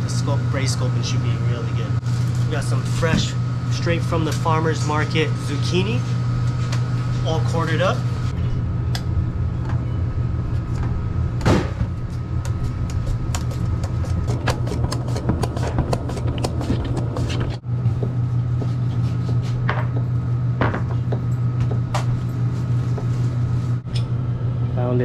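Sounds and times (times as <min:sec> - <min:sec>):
low machinery hum: 0:00.0 - 0:25.0
knife chopping on cutting board: 0:12.5 - 0:17.6.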